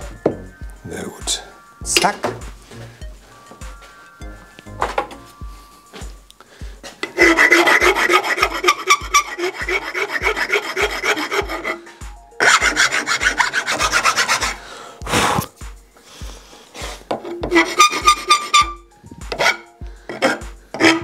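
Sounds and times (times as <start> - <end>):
hand saw cutting: 7.0 - 14.6, 17.2 - 21.0.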